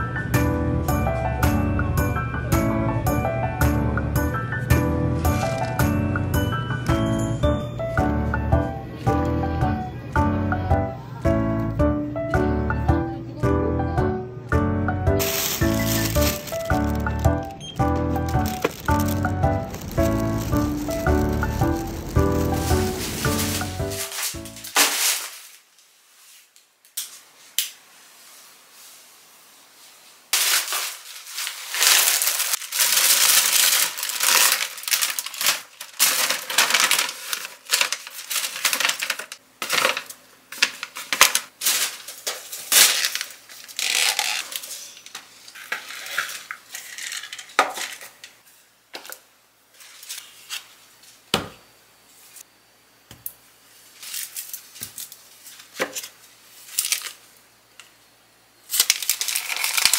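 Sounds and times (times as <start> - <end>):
plastic bag rustling: 5.1 - 6.1, 15.2 - 26.5, 29.9 - 48.2, 58.7 - 59.9
snack packets crinkling: 5.2 - 5.9, 15.2 - 25.6, 30.4 - 48.2, 56.6 - 57.2, 58.7 - 59.9.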